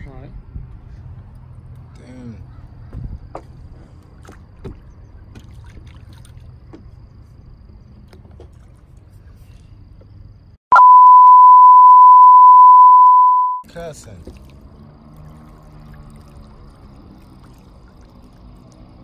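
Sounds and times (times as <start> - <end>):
water splashing and lapping: 3.4 - 7.1, 8.0 - 9.6, 13.8 - 19.0
censor bleep: 10.7 - 13.6.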